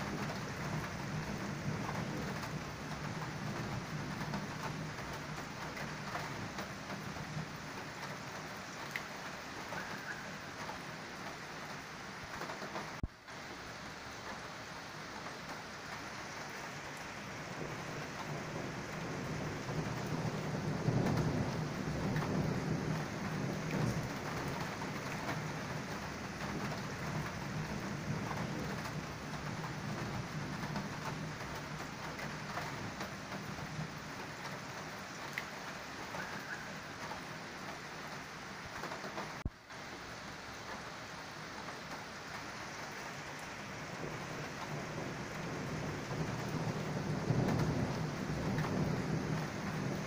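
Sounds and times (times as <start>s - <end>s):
low rumble of thunder: 0.0s - 8.9s, 17.0s - 37.3s, 43.4s - 50.0s
steady rain falling: 0.0s - 50.0s.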